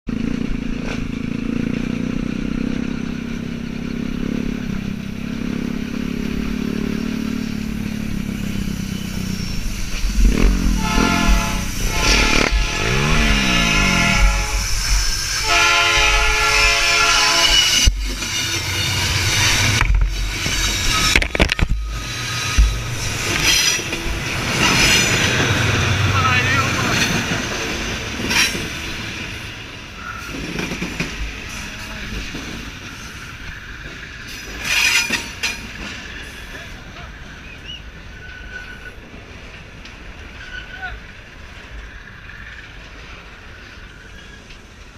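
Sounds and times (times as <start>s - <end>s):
motorcycle engine running: 0.1s - 14.6s
train horn blasts: 10.3s - 17.9s
sharp knocks and thumps: 19.7s - 24.2s.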